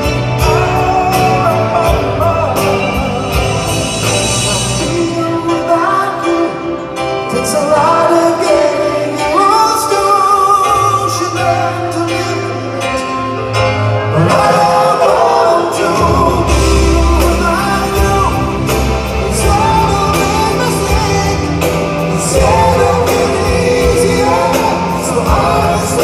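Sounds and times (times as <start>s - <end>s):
bass and drums: 0.0s - 5.7s, 15.8s - 26.0s
live rock band: 0.0s - 26.0s
man singing: 0.0s - 26.0s.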